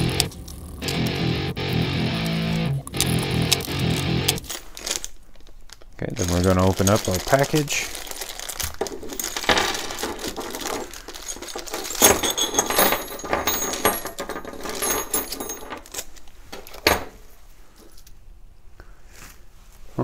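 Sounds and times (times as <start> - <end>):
plastic bag crinkling: 2.8 - 12.6
metal nuts and bolts clinking: 6.2 - 17.1.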